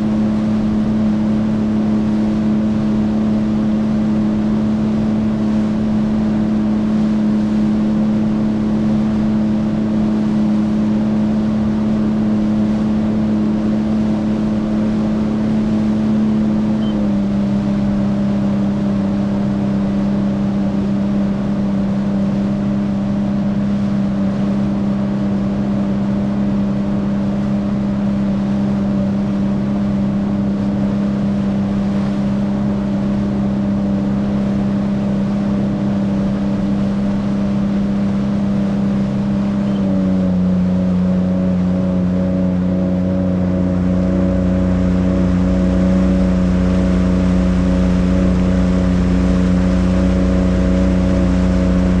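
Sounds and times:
jet ski engine running: 0.0 - 52.0.

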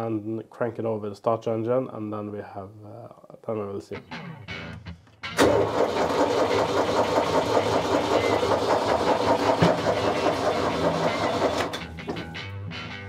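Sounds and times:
diesel engine cranking on starter: 5.4 - 11.9.

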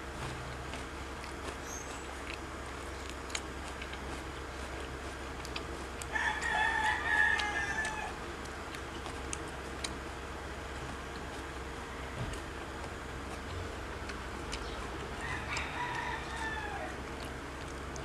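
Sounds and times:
rooster crowing: 6.1 - 8.2, 11.6 - 12.6, 15.2 - 17.2.

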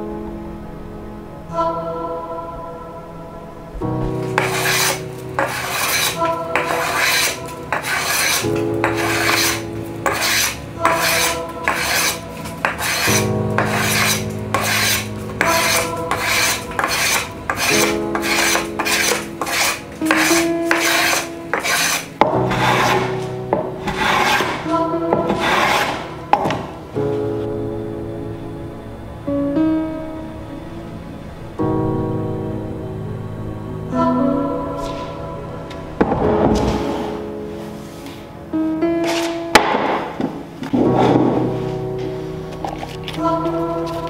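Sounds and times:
hand plane rasping wood: 4.2 - 26.8.

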